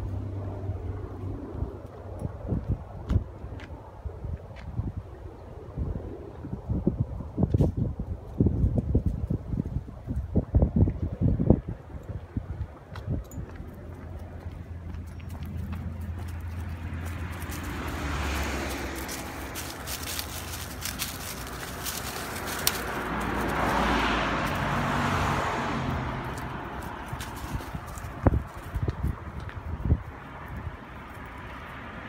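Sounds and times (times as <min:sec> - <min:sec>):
distant aircraft rumble: 0:00.0 - 0:08.5, 0:09.2 - 0:32.0
passing vehicle: 0:00.0 - 0:09.8, 0:10.4 - 0:32.0
dog paws on dry leaves: 0:13.4 - 0:31.5.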